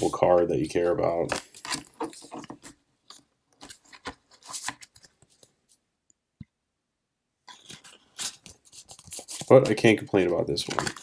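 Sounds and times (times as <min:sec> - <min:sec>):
cards being handled: 0:01.2 - 0:05.8, 0:07.5 - 0:11.0.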